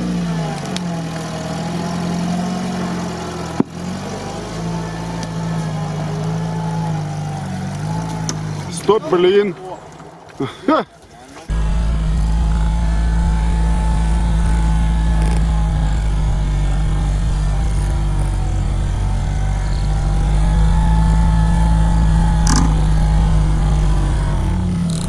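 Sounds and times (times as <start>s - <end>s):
truck engine under load: 0.0s - 25.0s
faint whine: 11.5s - 25.0s.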